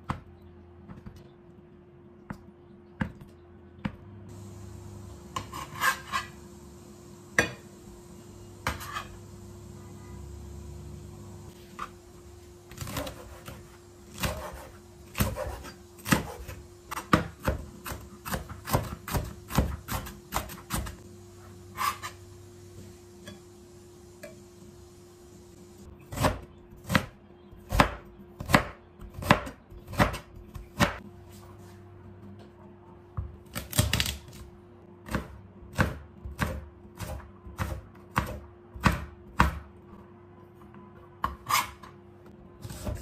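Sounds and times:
knife chopping on plastic board: 27.7 - 31.0, 35.1 - 39.7.

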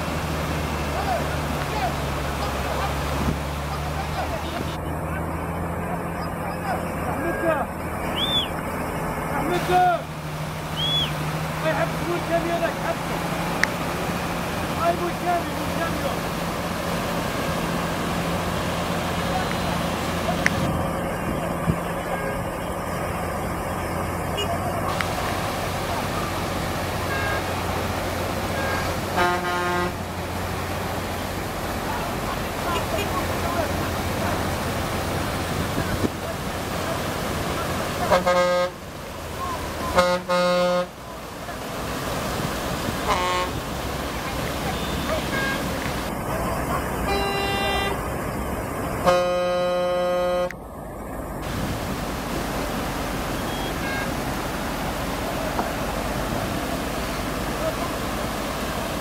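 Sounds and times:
vehicle engine running: 0.0 - 49.1
floodwater rushing: 0.0 - 59.0
vehicle horn: 24.3 - 24.6, 27.0 - 27.6, 28.5 - 30.0, 32.7 - 33.2, 38.0 - 38.8, 39.8 - 41.0, 43.0 - 43.6, 44.6 - 45.8, 47.0 - 48.1, 49.0 - 50.6, 53.4 - 54.1.

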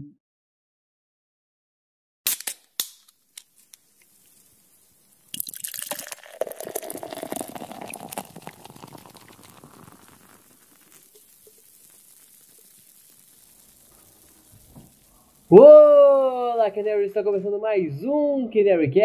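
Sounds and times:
liquid fizzing and hissing: 3.2 - 15.5.

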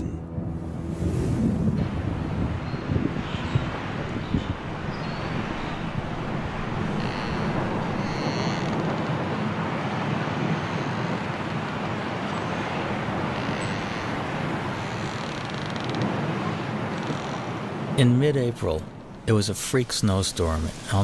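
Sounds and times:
strong wind rushing: 0.0 - 10.6.

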